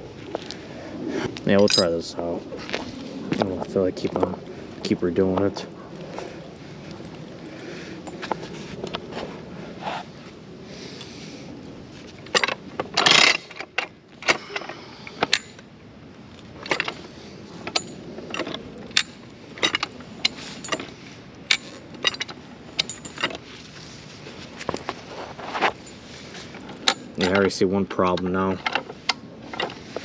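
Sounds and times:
chain rattling: 0:01.4 - 0:02.1, 0:12.3 - 0:15.6, 0:16.6 - 0:23.5, 0:25.7 - 0:27.6.

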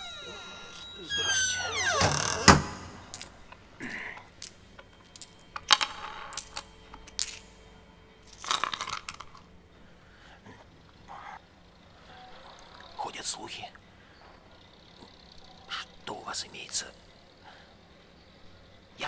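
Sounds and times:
light clinks of small objects: 0:04.2 - 0:07.7.

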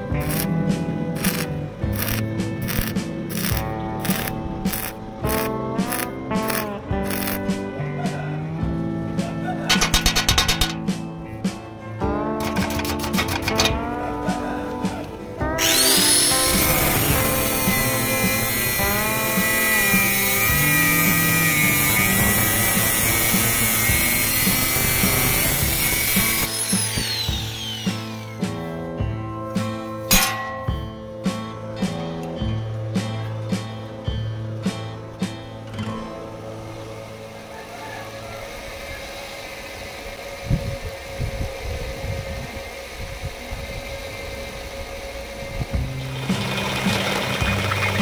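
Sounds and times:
background music with steady beat: 0:00.0 - 0:37.4
grinder disc whine spinning down: 0:00.2 - 0:00.5, 0:15.6 - 0:28.5
angle grinder cutting steel: 0:00.2 - 0:00.6, 0:01.2 - 0:07.5, 0:09.7 - 0:10.9, 0:15.5 - 0:28.5.

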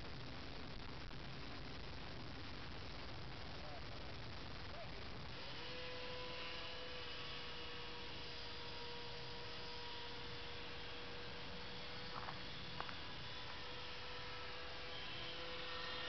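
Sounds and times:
constant hiss: 0:00.0 - 0:16.0
model airplane motor humming: 0:05.3 - 0:16.0.

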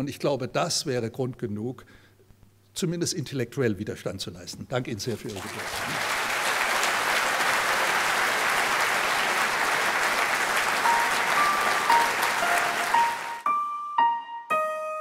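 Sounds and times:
audience applauding: 0:05.2 - 0:13.5.

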